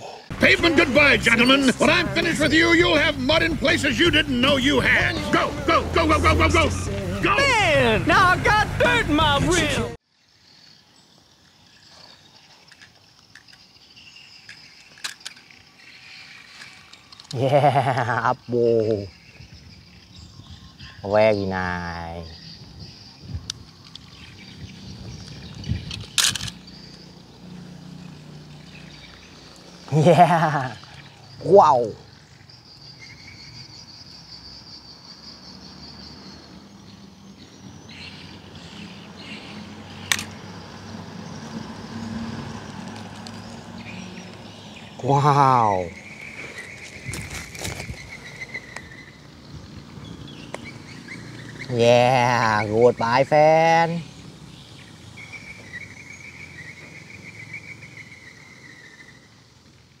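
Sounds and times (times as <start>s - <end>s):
faint outdoor background noise: 0.0s - 60.0s
insect trilling: 10.0s - 60.0s
faint chirps: 10.1s - 39.7s
sharp click: 40.1s - 40.4s.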